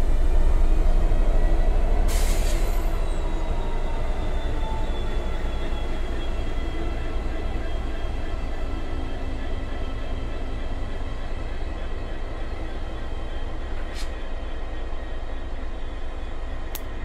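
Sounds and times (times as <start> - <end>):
diesel locomotive engine rumbling: 0.0 - 17.0
brief air hiss: 13.9 - 14.2.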